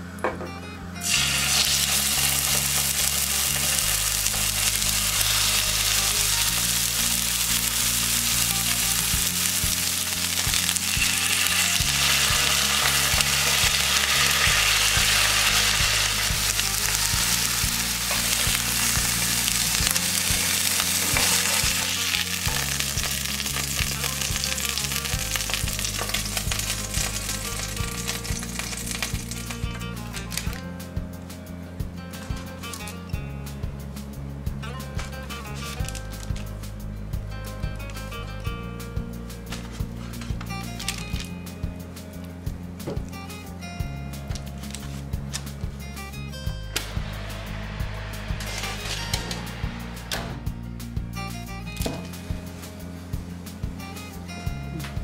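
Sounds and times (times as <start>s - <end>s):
quiet background music: 0.0s - 55.0s
chicken sizzling in hot oil: 1.0s - 30.6s.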